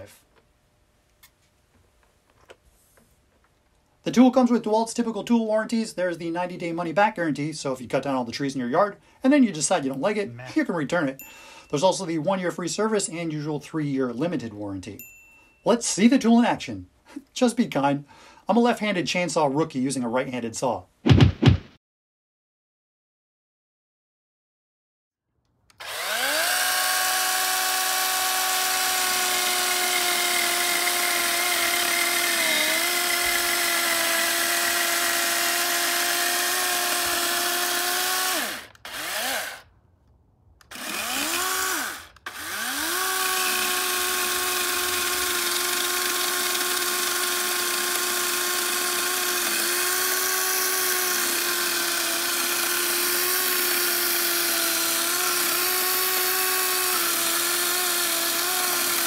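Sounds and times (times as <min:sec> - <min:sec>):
electric chainsaw cutting wood: 0:25.7 - 0:39.7, 0:40.6 - 0:59.0.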